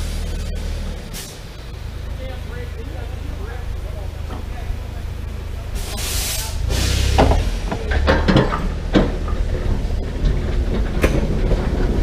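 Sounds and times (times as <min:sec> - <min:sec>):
low train rumble: 0:00.0 - 0:12.0
train cars clanking: 0:05.7 - 0:12.0
steam hiss: 0:05.8 - 0:07.6.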